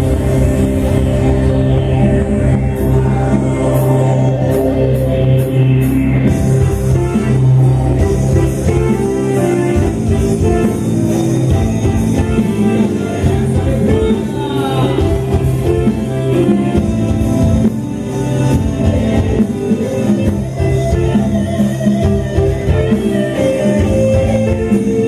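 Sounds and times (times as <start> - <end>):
amplified live band music: 0.0 - 25.0
guitar: 0.0 - 25.0
person singing: 12.2 - 16.4.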